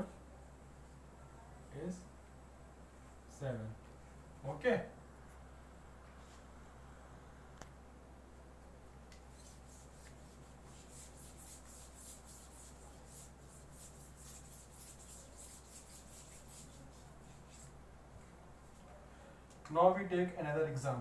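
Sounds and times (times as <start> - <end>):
wiping whiteboard: 9.3 - 17.8.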